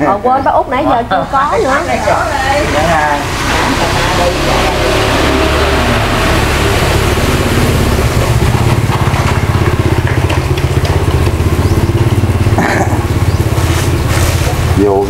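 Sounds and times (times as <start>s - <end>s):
motorcycle engine idling: 5.2s - 15.0s.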